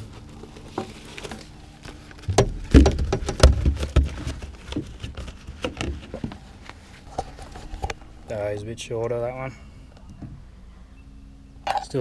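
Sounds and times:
knocks and thumps on boat deck: 0:02.3 - 0:04.9.

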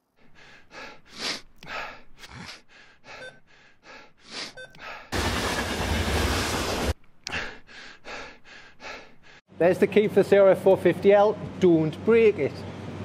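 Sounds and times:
train rumbling and hissing: 0:05.2 - 0:07.0.

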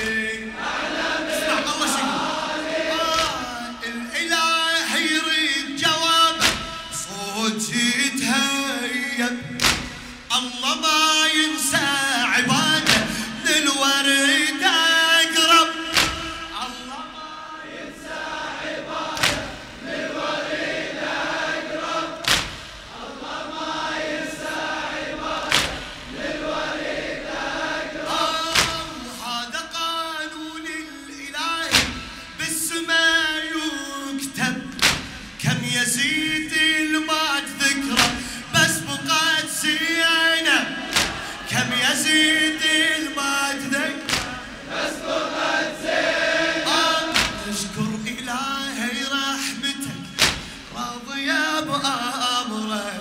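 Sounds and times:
man chanting into a microphone: 0:00.0 - 0:18.1, 0:28.0 - 0:45.0, 0:45.8 - 0:53.0
congregation singing in unison: 0:00.0 - 0:53.0.

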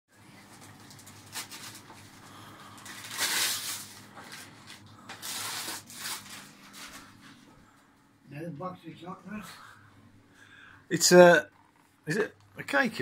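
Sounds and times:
wrapping paper tearing: 0:00.5 - 0:07.2.

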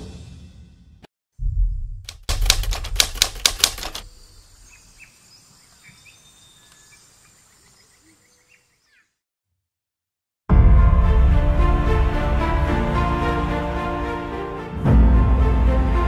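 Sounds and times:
sharp key clicks: 0:02.1 - 0:04.1
faint chirping: 0:04.0 - 0:09.2.

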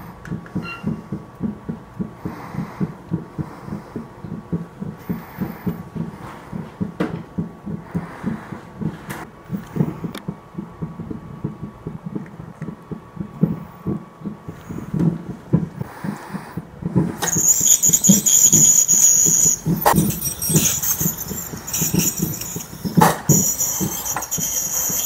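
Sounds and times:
faint steady high tone: 0:00.6 - 0:01.0, 0:17.2 - 0:25.0.

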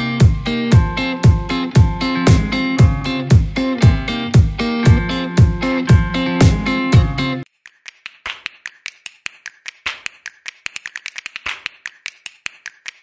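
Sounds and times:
guitar music: 0:00.0 - 0:07.4
sharp clicks and taps: 0:07.5 - 0:13.0.

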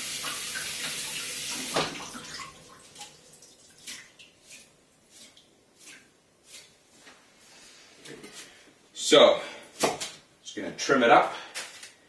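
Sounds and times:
tap water running: 0:00.0 - 0:06.6
water dripping: 0:00.1 - 0:06.0.

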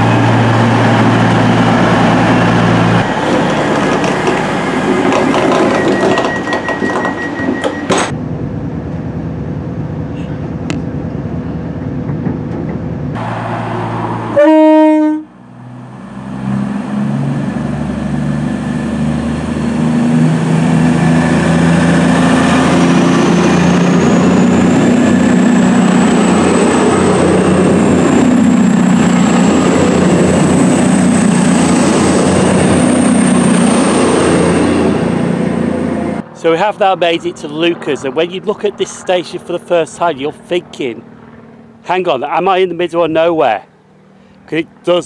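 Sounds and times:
diesel train engines: 0:00.0 - 0:45.0
train horn blast: 0:14.3 - 0:15.4
rising motor whine: 0:15.4 - 0:36.5.

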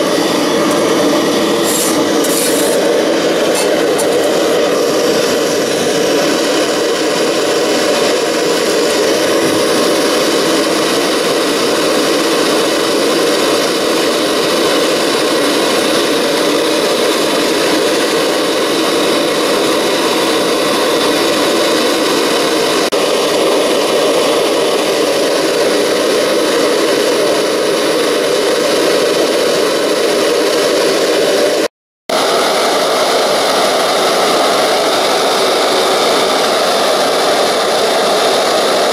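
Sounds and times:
gas torch roaring: 0:00.0 - 0:38.9.

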